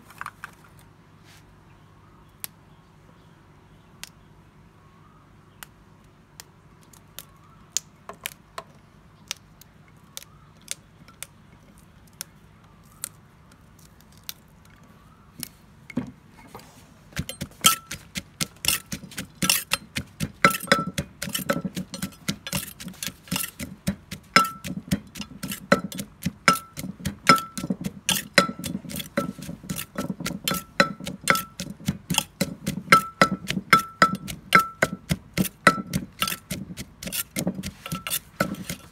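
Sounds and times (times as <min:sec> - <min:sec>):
metal spoon clinking on clay: 0:17.2 - 0:38.9
wooden pestle pounding clay mortar: 0:17.2 - 0:38.9.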